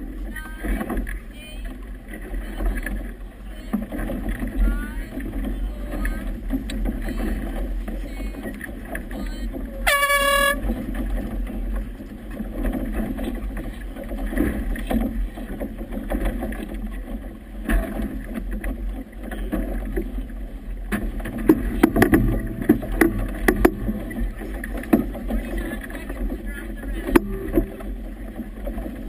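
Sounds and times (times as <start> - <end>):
water splashing against boat hull: 0.0 - 29.0
hull slaps and knocks: 3.7 - 20.2, 20.8 - 29.0.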